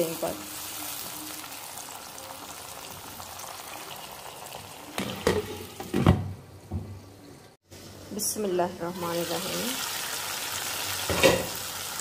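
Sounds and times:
glass lid clanking: 0:11.1 - 0:11.5.

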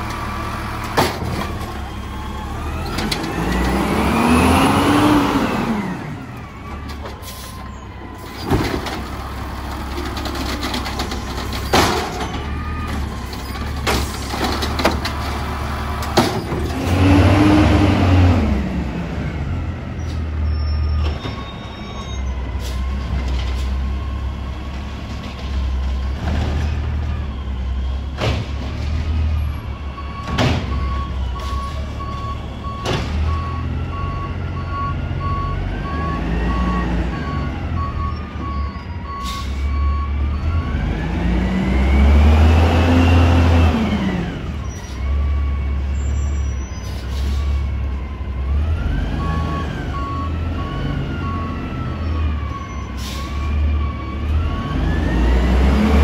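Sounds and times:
garbage truck engine revving: 0:00.0 - 0:06.8, 0:08.3 - 0:21.4, 0:22.4 - 0:56.0
beeping alarm: 0:20.5 - 0:23.1, 0:49.1 - 0:55.4.

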